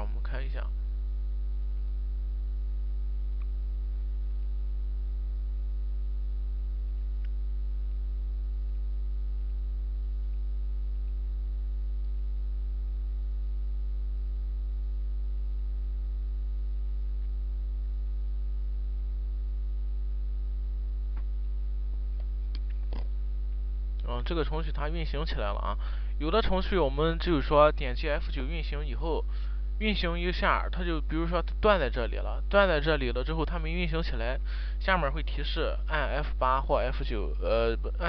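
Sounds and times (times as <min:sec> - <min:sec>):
electrical mains hum: 0:00.0 - 0:38.0
faint ticks: 0:03.3 - 0:03.7, 0:06.9 - 0:07.4.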